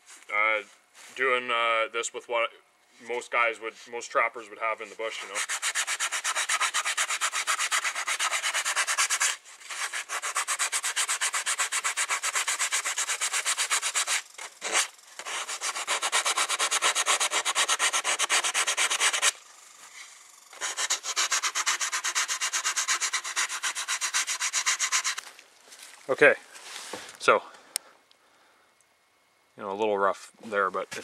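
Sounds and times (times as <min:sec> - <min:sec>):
sandpaper rubbing on wood: 0:04.9 - 0:19.4, 0:20.5 - 0:25.2.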